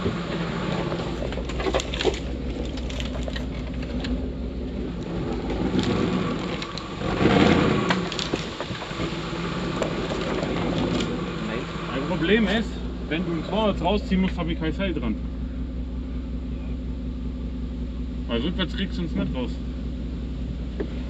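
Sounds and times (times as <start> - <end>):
engine running low and steady: 0.0 - 21.0
cracks and knocks: 1.2 - 4.2, 7.8 - 9.1.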